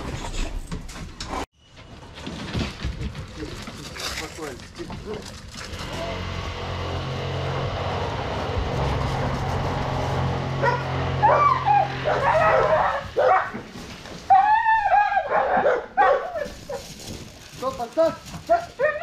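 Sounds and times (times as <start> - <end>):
dog whining and yipping: 10.6 - 13.5, 14.3 - 16.8.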